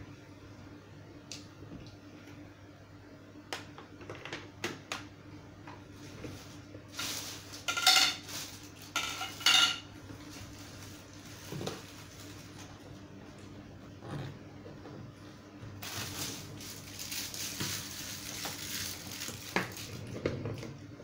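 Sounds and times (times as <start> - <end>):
plastic parts clattering and clinking: 7.0 - 9.8.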